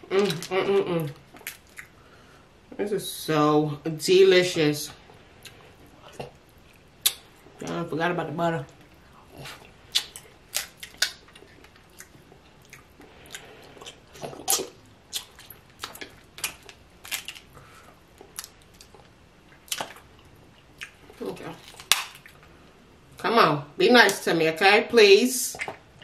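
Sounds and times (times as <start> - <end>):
wet chewing and smacking: 1.2 - 2.0, 8.7 - 22.5, 25.5 - 26.0.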